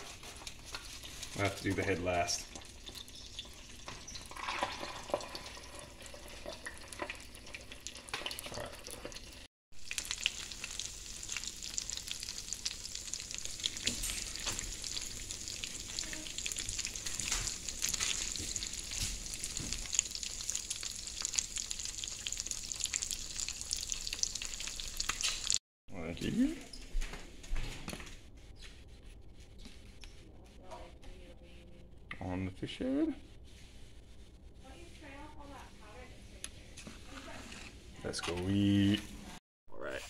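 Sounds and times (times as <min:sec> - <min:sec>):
fish sizzling in hot oil: 0:00.6 - 0:25.6
breadcrumbs rustling and crunching: 0:09.9 - 0:25.6.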